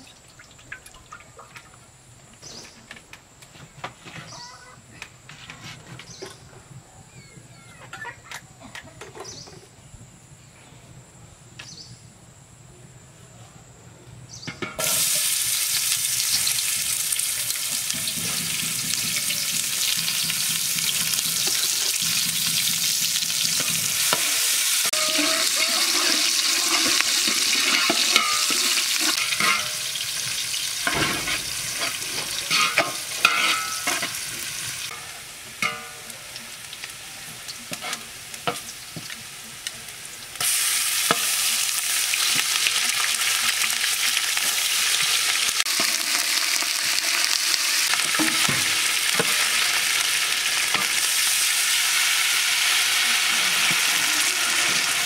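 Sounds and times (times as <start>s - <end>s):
onion sizzling in hot oil: 14.6s - 55.0s
spatula stirring pot: 17.8s - 29.8s.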